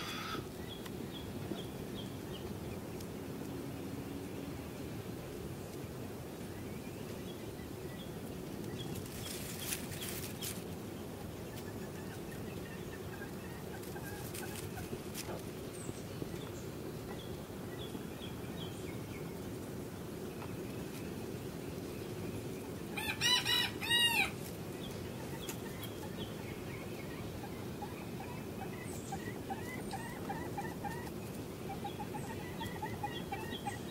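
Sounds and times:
cockerel crowing: 0.0 - 0.5, 23.0 - 24.4
soft clucks and chirps: 0.0 - 3.8, 7.0 - 19.6, 22.1 - 33.9
low background noise: 0.0 - 33.9.

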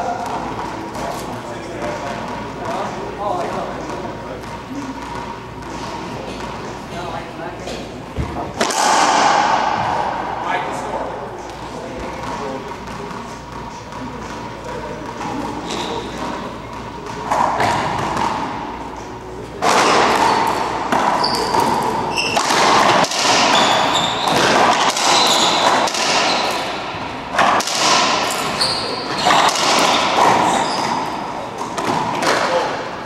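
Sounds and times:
shoes squeaking on hardwood floor: 15.3 - 16.7, 20.2 - 22.5, 23.5 - 24.5, 25.1 - 26.6, 28.3 - 29.5, 30.2 - 31.2
ball cracking off racquets and walls: 19.6 - 32.8.

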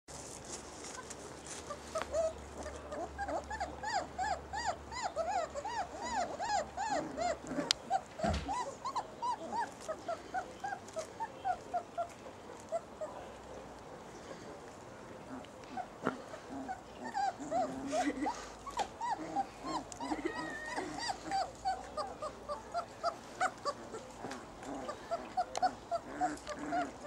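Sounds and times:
puppies whimpering and yelping: 0.8 - 13.4, 15.2 - 27.0
soft thump: 8.2 - 8.6.

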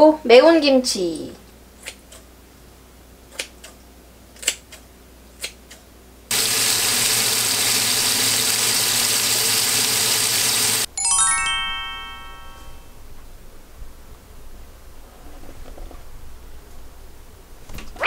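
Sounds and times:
meat sizzling in a frying pan: 6.3 - 10.9
descending chime sound effect: 10.9 - 13.1.

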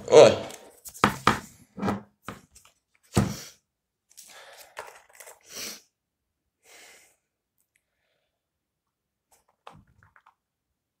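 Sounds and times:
cable rustling and handling: 4.1 - 5.5, 9.3 - 10.4.

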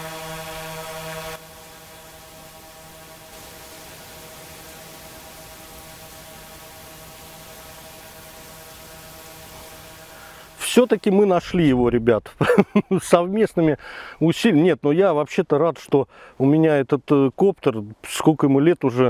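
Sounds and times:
steady hum: 0.0 - 11.8
faint hiss: 0.0 - 12.7.

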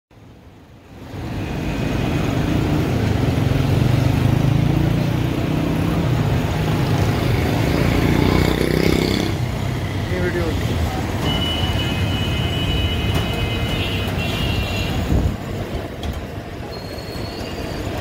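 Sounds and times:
street traffic rumble: 0.1 - 18.0.

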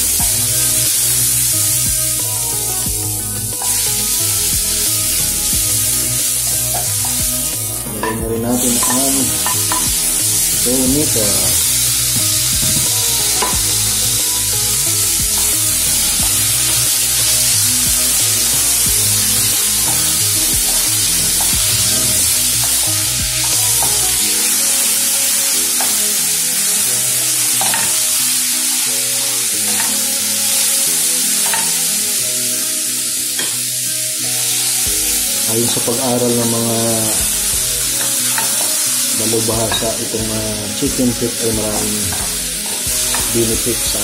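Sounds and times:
vegetables sizzling in oil: 0.0 - 44.0
wooden spoon knocking on pan: 12.2 - 13.8.

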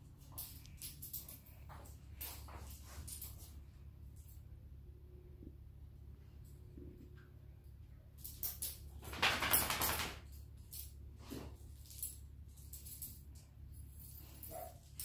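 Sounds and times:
leash fittings jingling: 0.0 - 4.4, 8.2 - 9.0, 11.6 - 15.0
dog claws clicking on tile: 8.2 - 11.0.

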